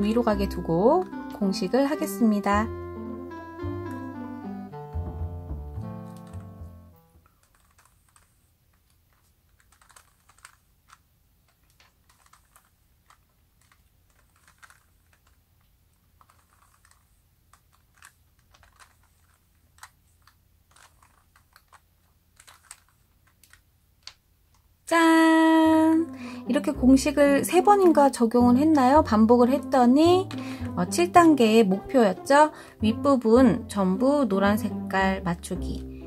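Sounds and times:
music: 0.0 - 7.3, 24.9 - 36.0
plastic puzzle cube clicking: 5.8 - 24.7, 27.5 - 28.3.

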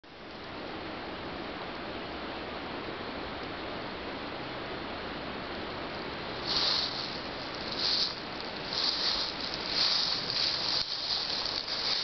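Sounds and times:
steady hiss: 0.1 - 12.0
footsteps crunching dry leaves: 6.3 - 12.0.

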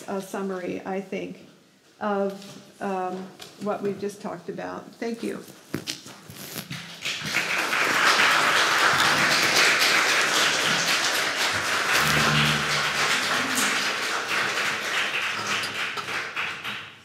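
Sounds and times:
audience applauding: 6.9 - 17.0.

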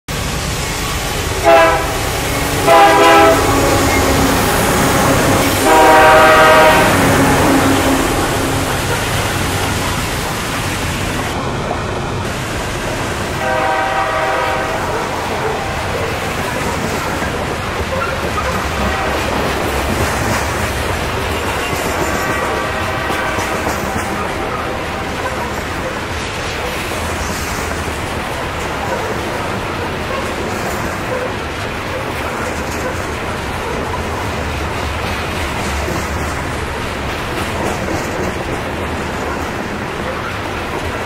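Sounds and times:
diesel locomotive passing: 0.1 - 41.0
rail cars clattering over joints: 0.1 - 41.0
train air horn blasts: 1.2 - 9.6, 13.4 - 16.2, 18.4 - 19.5, 21.3 - 25.8.

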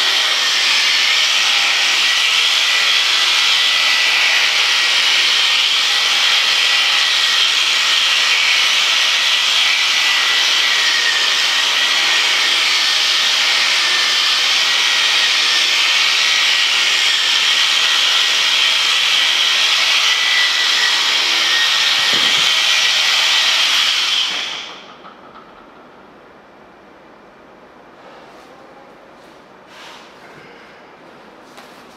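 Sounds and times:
electric clippers whining: 0.0 - 25.0.

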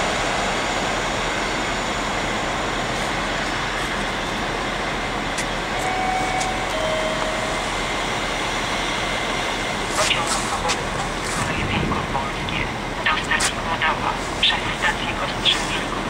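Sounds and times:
train rolling: 0.0 - 16.0
faint two-tone signal: 5.8 - 7.7.

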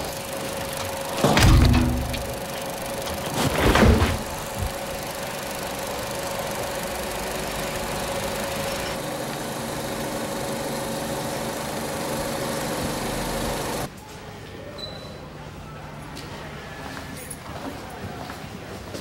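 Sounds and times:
film projector whirring: 0.0 - 13.9.

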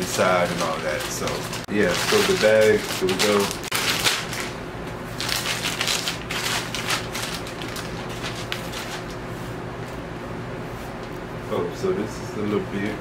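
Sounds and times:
plastic mailer bag crinkling: 0.0 - 9.2.

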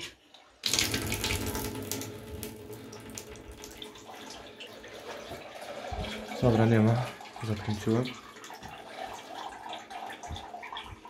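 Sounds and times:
water running from a tap: 0.0 - 11.0.

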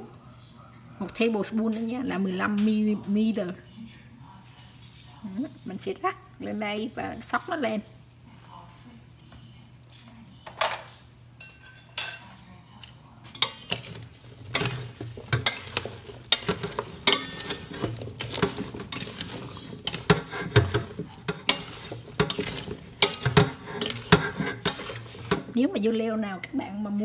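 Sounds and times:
utensil scraping metal bowl: 4.6 - 8.2, 13.3 - 25.6.

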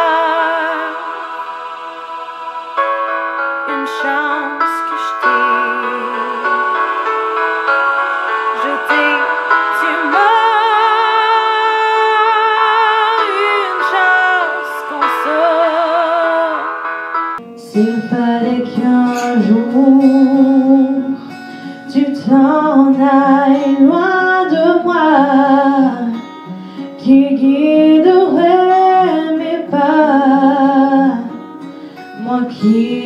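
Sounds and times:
woman singing: 0.0 - 1.7, 3.6 - 16.9, 17.5 - 21.2, 21.9 - 26.2, 27.0 - 31.4, 32.2 - 33.0
strummed acoustic guitar: 17.4 - 33.0.

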